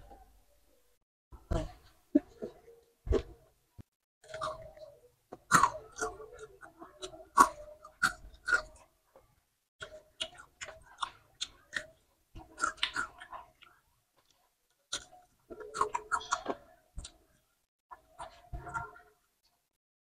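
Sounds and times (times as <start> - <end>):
crunchy chewing: 4.2 - 8.9, 9.8 - 19.1.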